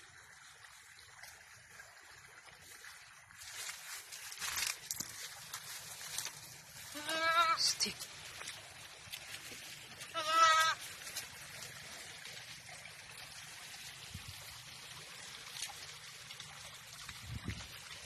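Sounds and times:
goat bleating: 6.9 - 7.8, 10.1 - 10.8.

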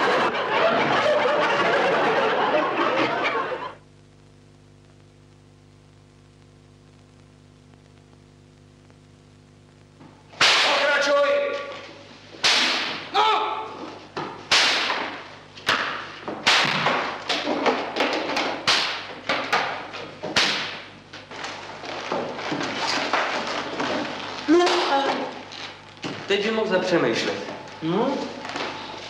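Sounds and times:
whip cracking: 10.4 - 10.9, 12.4 - 13.1, 14.5 - 17.4, 18.6 - 19.1, 20.4 - 20.9.

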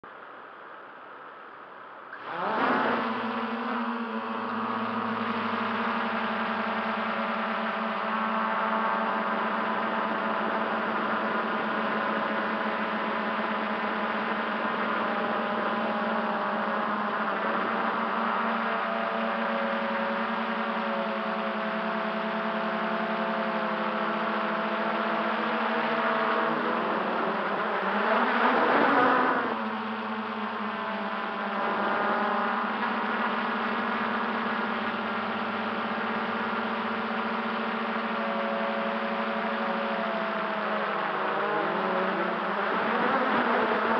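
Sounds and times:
drone motors whirring: 2.1 - 43.9.

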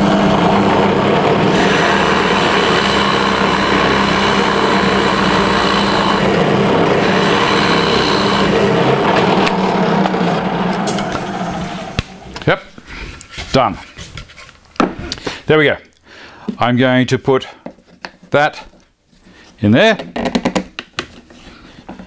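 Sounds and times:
drill bit cutting wood: 0.0 - 11.5
drill press motor hum: 0.0 - 12.4.

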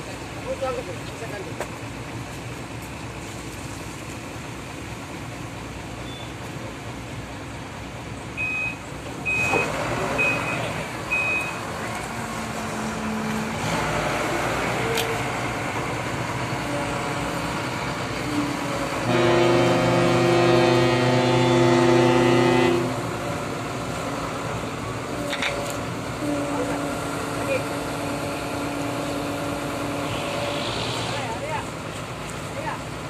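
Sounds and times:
harbour traffic and engines: 0.0 - 33.0
loud low multi-pitch tone: 19.0 - 23.4.

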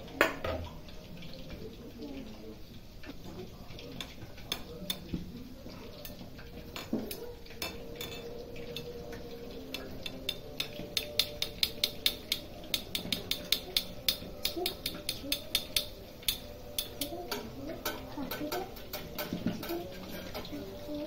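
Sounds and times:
chicken deep-frying in oil: 0.0 - 21.0
metal spoon clinking on pan: 4.0 - 5.1, 5.9 - 20.6.

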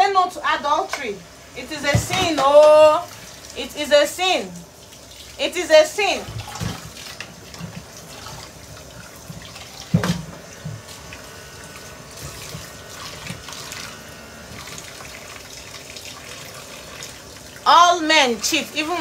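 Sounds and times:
hands rinsing: 4.4 - 17.7.

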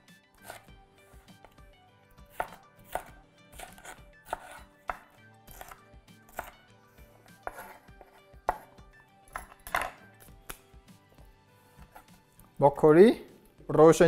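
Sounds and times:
knife slicing scrape: 0.3 - 1.6, 2.3 - 8.8, 11.6 - 12.2
knife knocking on cutting board: 7.5 - 8.7.

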